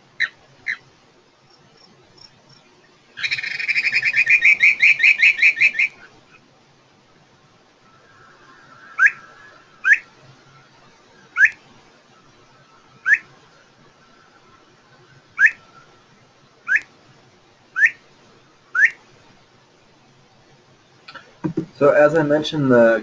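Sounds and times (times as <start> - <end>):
faint steady tone: 0.0 - 23.0
bird whistled upward notes: 7.9 - 10.2, 11.2 - 11.6, 13.0 - 13.3, 15.4 - 15.9, 17.8 - 18.0, 18.8 - 19.0.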